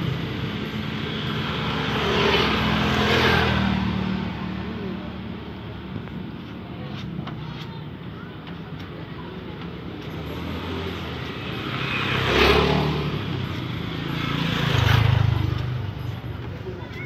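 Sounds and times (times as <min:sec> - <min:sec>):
vehicle passing by: 0:00.0 - 0:05.3, 0:10.2 - 0:16.4
traffic engine hum: 0:00.0 - 0:17.0.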